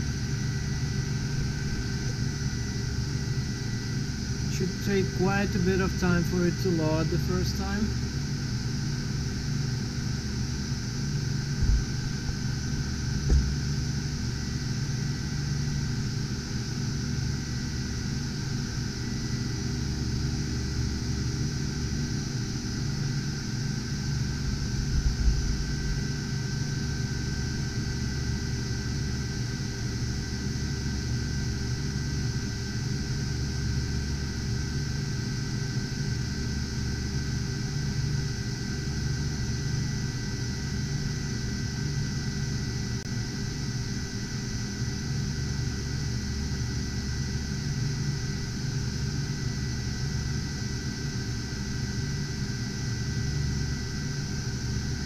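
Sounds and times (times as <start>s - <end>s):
cooling fans whirring: 0.0s - 55.0s
soft low bumps: 11.6s - 12.3s, 13.2s - 13.6s.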